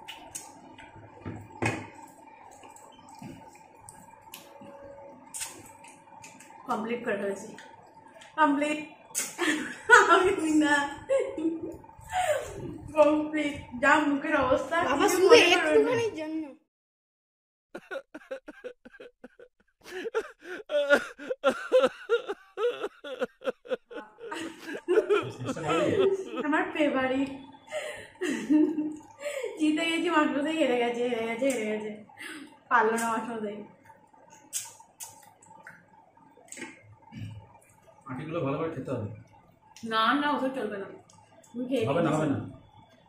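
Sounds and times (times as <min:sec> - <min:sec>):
faint steady hum: 0:00.0 - 0:16.5, 0:17.8 - 0:43.0
wet sucking and chewing: 0:01.9 - 0:06.6, 0:33.8 - 0:38.0
mouth smacks and clicks: 0:05.3 - 0:06.6, 0:09.1 - 0:09.4, 0:33.8 - 0:37.7
person laughing: 0:17.8 - 0:26.6.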